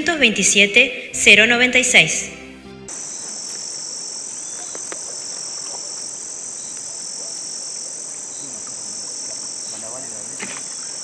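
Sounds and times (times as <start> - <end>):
crickets and insects buzzing: 2.9 - 11.0
faint bird chirps: 2.9 - 11.0.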